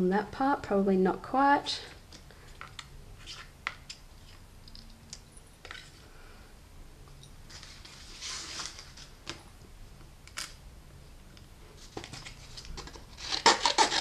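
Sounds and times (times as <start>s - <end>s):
paper rustling: 7.5s - 9.4s, 11.8s - 14.0s
scissors snipping paper: 13.2s - 14.0s.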